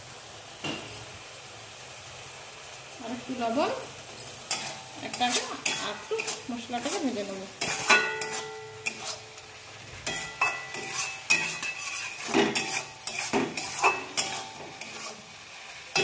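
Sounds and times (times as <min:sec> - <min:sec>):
light sizzle: 0:00.0 - 0:16.0
metal spatula scraping a pan: 0:04.4 - 0:16.0.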